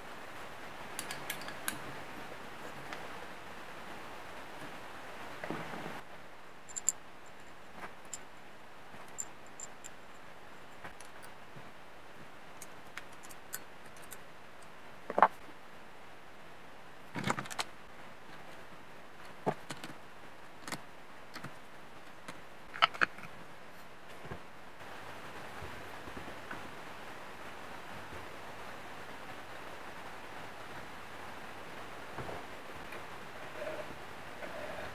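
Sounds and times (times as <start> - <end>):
faint steady hiss: 0.0 - 34.9
metal parts clicking and clinking: 6.7 - 8.3, 9.0 - 10.1, 12.6 - 14.2.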